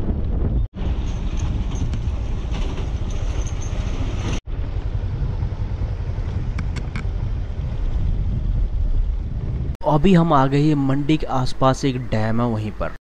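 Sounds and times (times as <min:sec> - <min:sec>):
motorcycle engine and tyres rumble: 0:00.0 - 0:09.8
wind buffeting microphone: 0:00.0 - 0:09.9.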